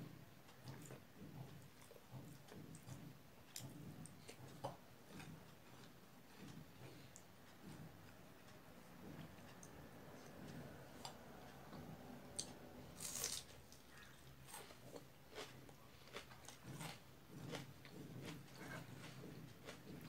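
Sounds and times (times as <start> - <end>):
fingers mixing food on a plate: 0.0 - 12.7, 13.5 - 20.0
mouth chewing: 0.5 - 8.2, 12.4 - 20.0.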